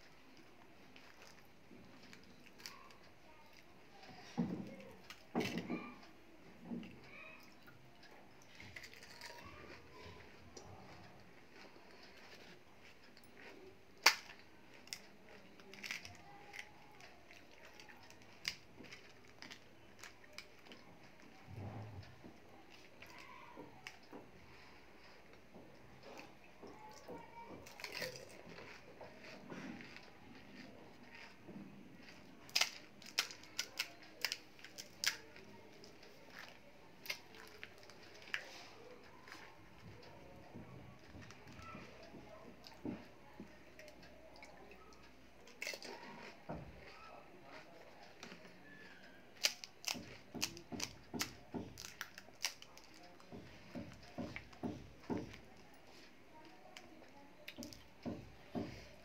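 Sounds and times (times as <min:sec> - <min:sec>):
fried shells cracking by hand: 0:11.6 - 0:21.3, 0:26.1 - 0:39.6, 0:45.0 - 0:55.6.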